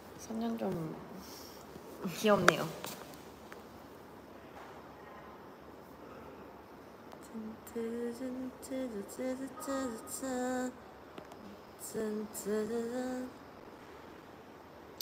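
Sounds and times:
woman softly singing: 7.2 - 10.8, 11.4 - 13.5.

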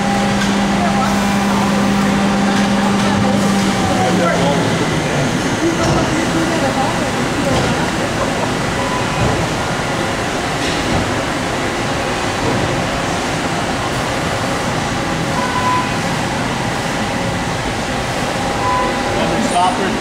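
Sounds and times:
machine tool running with coolant spray: 0.0 - 15.4.

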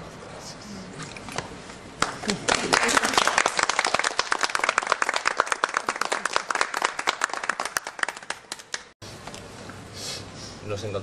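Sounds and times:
people clapping: 2.0 - 9.0.

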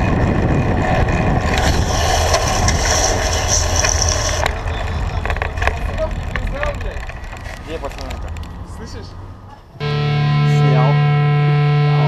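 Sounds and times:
wind rumbling on microphone: 0.0 - 9.4
bicycle tyre and road noise: 0.0 - 9.8
high hiss: 1.5 - 4.6.

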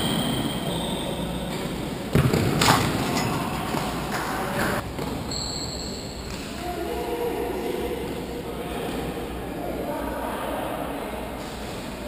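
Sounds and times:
high squeak: 5.3 - 6.3.

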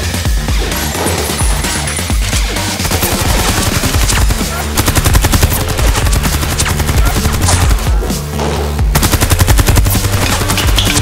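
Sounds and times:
music with heavy bass: 0.0 - 11.0
rapid-fire rattling clatter: 1.6 - 7.8, 8.9 - 11.0.

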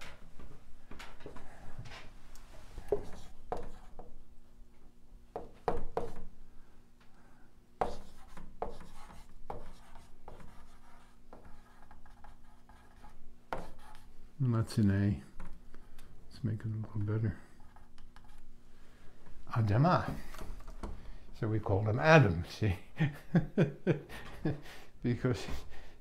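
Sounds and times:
marker writing on whiteboard: 2.8 - 4.2, 5.4 - 6.3, 7.8 - 14.1, 17.6 - 18.5.

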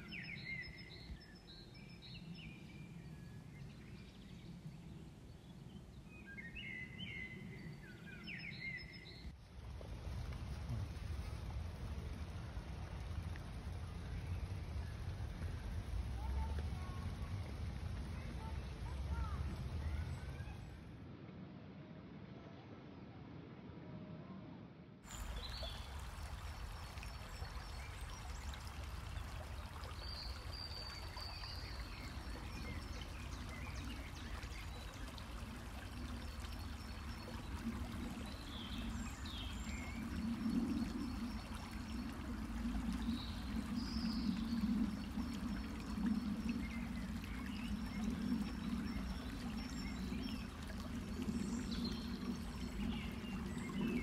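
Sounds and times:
small birds chirping: 25.1 - 54.0.

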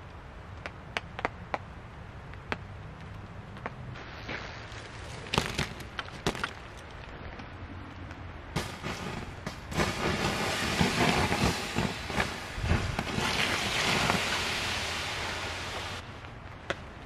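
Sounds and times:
embers crackling and popping: 0.0 - 17.0
rain hissing: 3.9 - 5.3, 8.3 - 16.3.

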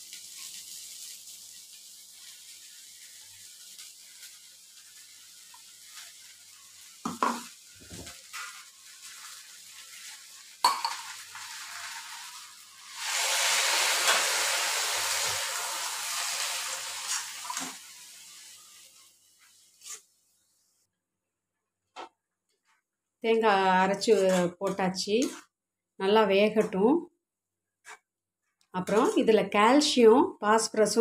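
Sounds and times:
loud sizzle in hot pan: 0.0 - 20.0
metal spatula scraping pan: 24.0 - 25.4.

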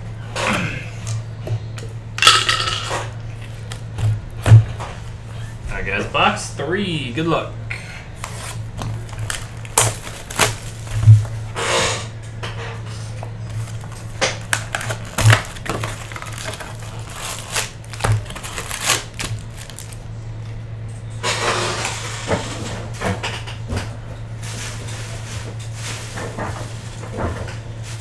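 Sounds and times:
steady low hum: 0.0 - 28.0
foil packs crinkling: 8.2 - 11.4, 13.4 - 20.1.

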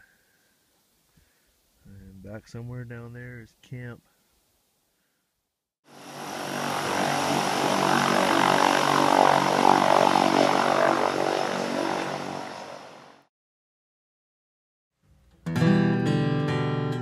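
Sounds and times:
floatplane engine and propeller: 5.9 - 13.3.

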